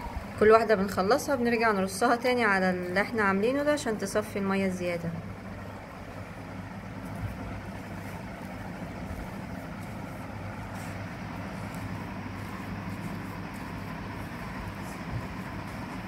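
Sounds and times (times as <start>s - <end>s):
low motor hum: 0.0s - 16.0s
rustling and scraping by hand: 6.1s - 16.0s.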